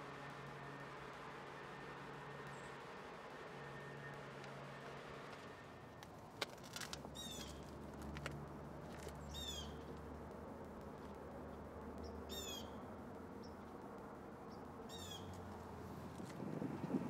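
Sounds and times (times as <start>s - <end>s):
low steady hum: 0.0s - 7.8s
bird chirping call: 9.2s - 9.8s, 12.0s - 12.8s.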